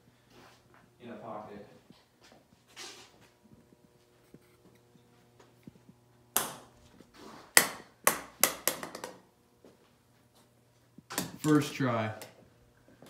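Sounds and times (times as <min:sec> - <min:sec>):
ball bouncing on pool table: 0:07.6 - 0:09.2.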